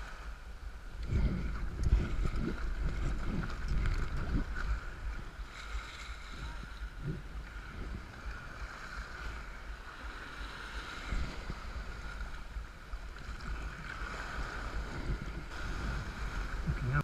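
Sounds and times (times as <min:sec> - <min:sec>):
waves breaking into whitewater: 0:00.0 - 0:17.0
wind buffeting microphone: 0:00.6 - 0:17.0.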